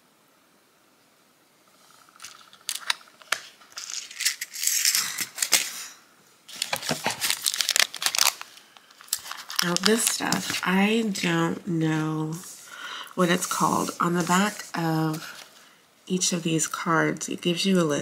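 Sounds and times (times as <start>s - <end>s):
cellophane packet crinkling: 2.1s - 11.0s.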